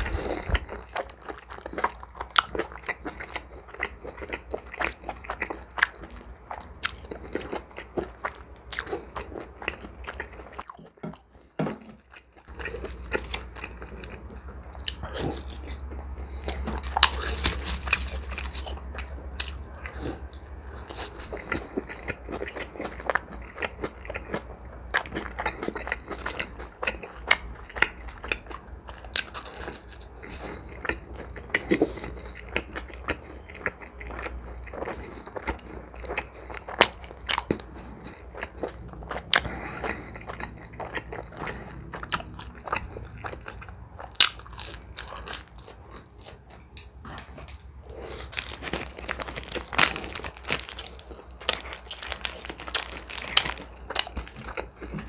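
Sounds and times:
wet chewing: 0.0s - 55.0s
sharp crunches: 47.9s - 55.0s.

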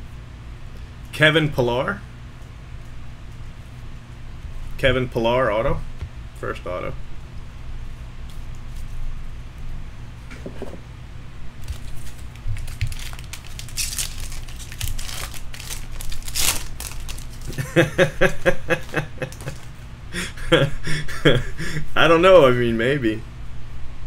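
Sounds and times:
foil wrapper tearing and crinkling: 11.6s - 17.7s, 18.8s - 19.7s.

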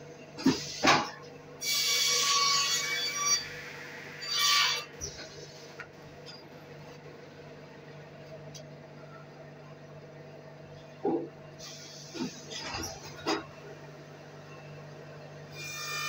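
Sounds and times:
saw cutting timber with ringing whine: 1.6s - 4.9s, 15.5s - 16.0s.

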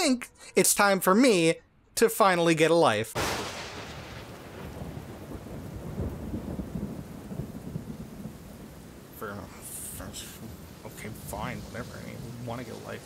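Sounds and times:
heavy rain: 3.2s - 13.0s
thunder clap: 3.2s - 13.0s
thunder rumbling: 3.2s - 13.0s.

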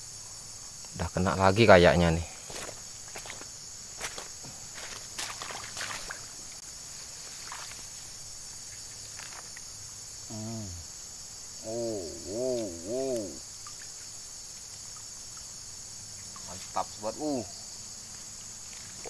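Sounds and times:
crickets chirping: 0.0s - 19.0s
low voice-like hums: 10.3s - 10.8s, 11.6s - 13.4s.

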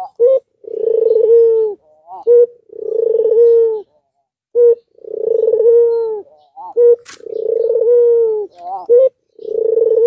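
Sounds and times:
dove cooing: 0.0s - 10.0s.

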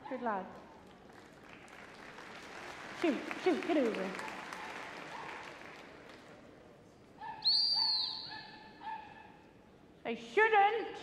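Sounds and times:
short lower whistle notes: 7.4s - 8.3s
shrill dog whistle blast: 7.4s - 8.6s.

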